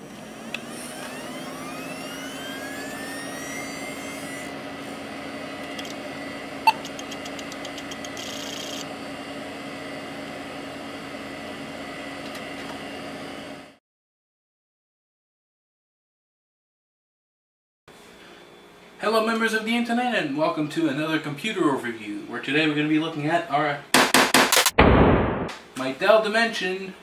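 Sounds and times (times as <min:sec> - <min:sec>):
computer fans whining: 0:00.0 - 0:13.8
hard drive clicking: 0:05.6 - 0:06.0, 0:06.7 - 0:08.9.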